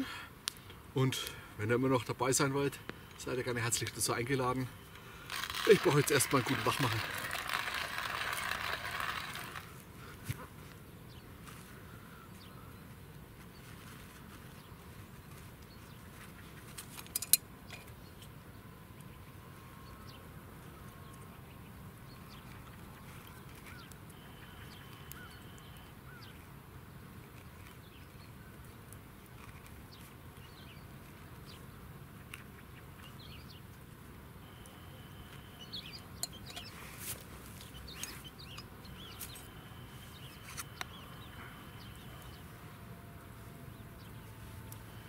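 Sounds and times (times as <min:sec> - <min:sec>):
low background hiss: 0:00.0 - 0:07.1
birds chirping: 0:00.0 - 0:45.0.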